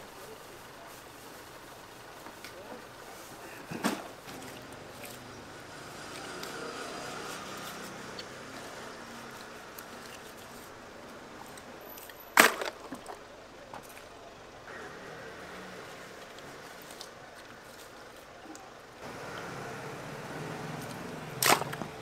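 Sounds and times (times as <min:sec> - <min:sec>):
outdoor background noise: 0:00.0 - 0:22.0.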